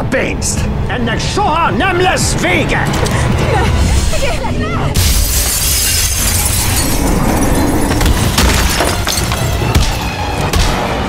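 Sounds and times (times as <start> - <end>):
glass shattering: 5.0 - 10.1.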